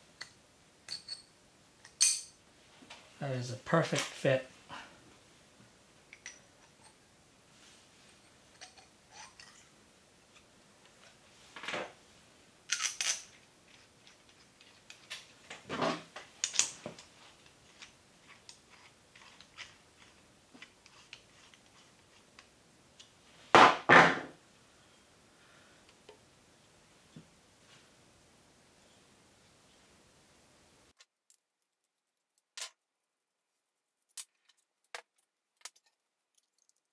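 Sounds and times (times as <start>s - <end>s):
small metal clicks and clinks: 12.7s - 15.2s.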